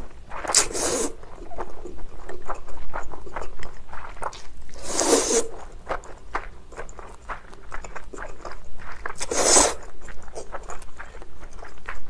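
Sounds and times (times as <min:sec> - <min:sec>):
noodle slurping: 0:00.0 - 0:06.2, 0:09.0 - 0:10.6
wet chewing: 0:00.0 - 0:12.0.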